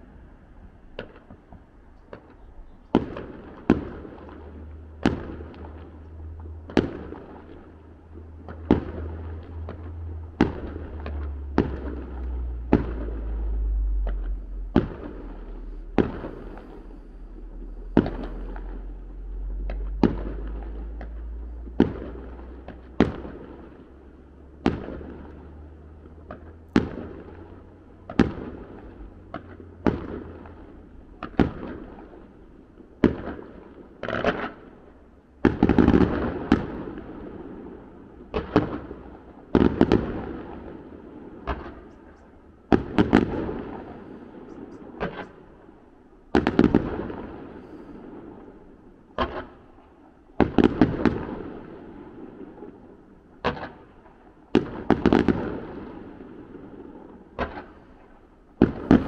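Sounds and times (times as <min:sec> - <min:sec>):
low steady rumble: 0:00.0 - 0:33.9, 0:51.2 - 0:59.0
fireworks bangs echoing: 0:01.0 - 0:59.0.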